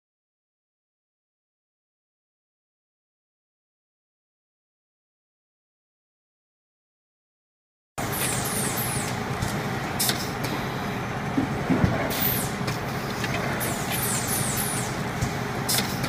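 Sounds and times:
pneumatic air hisses: 8.0s - 9.2s, 10.0s - 10.6s, 12.1s - 16.0s
shop machinery din: 8.0s - 16.0s.

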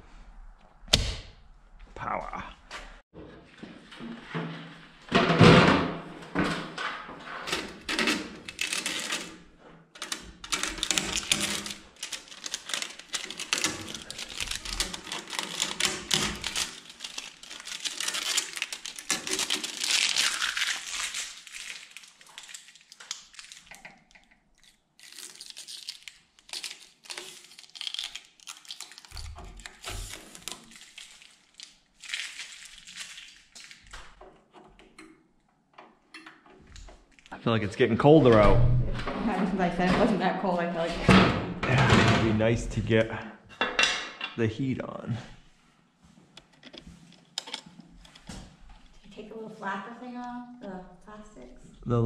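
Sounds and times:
tape and plastic crinkling and tearing: 7.4s - 9.4s, 10.0s - 34.2s.

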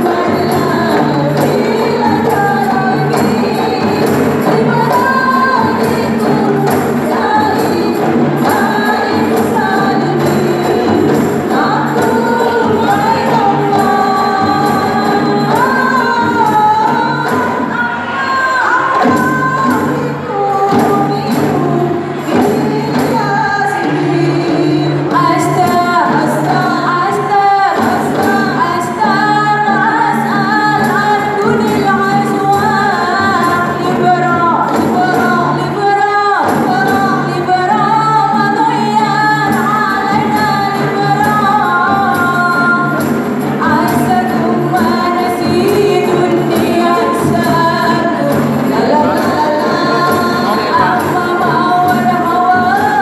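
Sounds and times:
frame drum beats: 0.0s - 53.0s
women singing in harmony: 0.0s - 53.0s.

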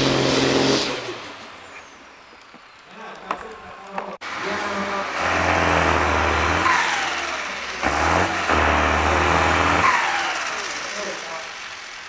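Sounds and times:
tractor diesel engine revving: 0.0s - 1.4s, 4.2s - 12.0s.

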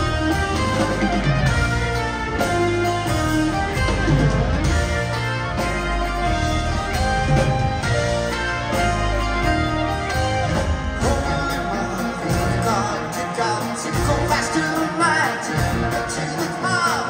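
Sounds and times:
live rock band playing: 0.0s - 17.0s
person singing: 11.0s - 17.0s.

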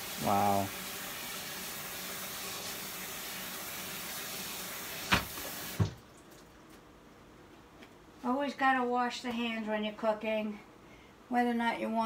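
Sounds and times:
tap water running into sink: 0.0s - 6.0s.

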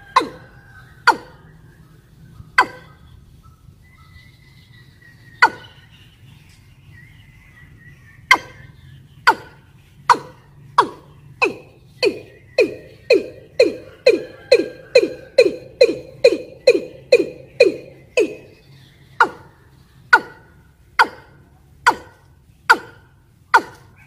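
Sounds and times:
bird calling sharp notes: 0.0s - 24.0s.

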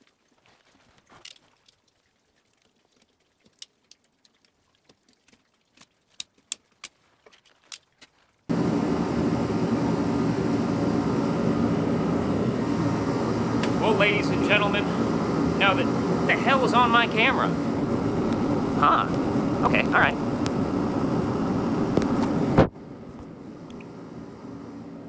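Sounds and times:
heater roaring: 8.5s - 25.0s.

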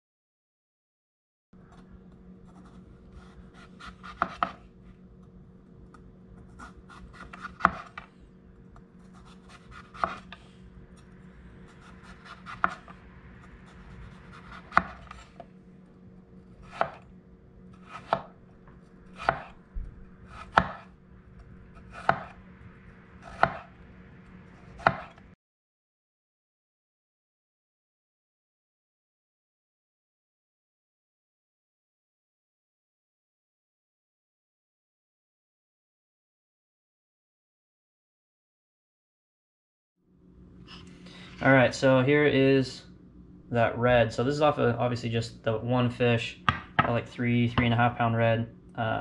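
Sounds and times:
low steady hum: 1.6s - 25.4s, 40.1s - 49.0s
knife slicing on cutting board: 2.5s - 4.6s, 6.5s - 8.1s, 9.0s - 10.4s, 11.7s - 12.9s, 13.6s - 15.4s, 16.6s - 17.0s, 17.8s - 18.4s, 19.2s - 19.6s, 20.3s - 20.9s, 21.8s - 22.4s, 23.2s - 23.7s, 24.6s - 25.2s
blade knocking on wooden board: 46.5s - 46.9s.

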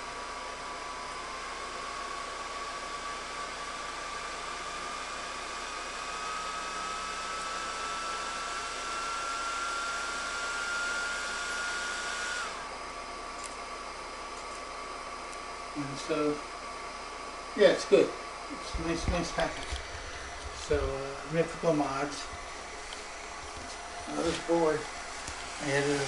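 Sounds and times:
thin electronic whine: 2.8s - 26.0s
fan hiss: 17.5s - 26.0s.

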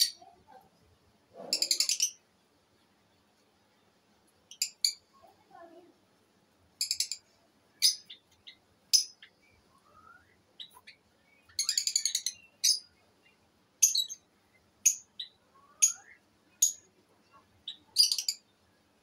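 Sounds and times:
lovebirds chirping: 0.0s - 5.9s, 6.7s - 19.0s
soft rising whistles: 9.5s - 10.5s, 15.4s - 16.1s.

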